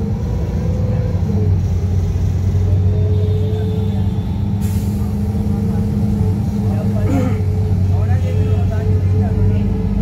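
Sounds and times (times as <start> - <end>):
bus engine drone: 0.0 - 10.0
short hiss: 4.6 - 5.2.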